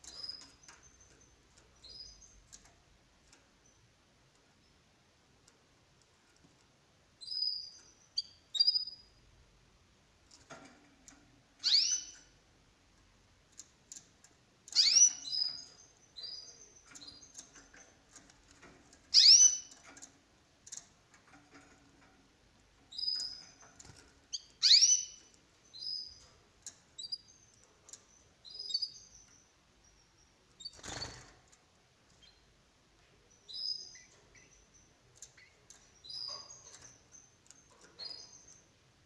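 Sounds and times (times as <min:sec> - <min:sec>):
canary high chirps: 0:00.0 - 0:02.6, 0:07.2 - 0:09.2, 0:11.6 - 0:12.4, 0:14.6 - 0:20.0, 0:22.9 - 0:31.3, 0:33.2 - 0:38.8.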